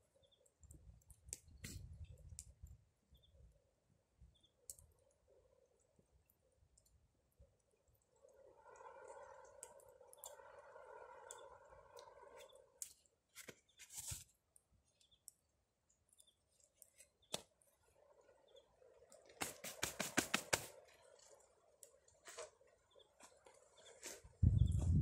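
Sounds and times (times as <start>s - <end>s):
campfire crackling: 0.0s - 24.4s
fire pops and snaps: 0.5s - 2.8s, 4.6s - 5.0s, 9.5s - 15.4s, 16.2s - 17.7s, 19.1s - 22.5s.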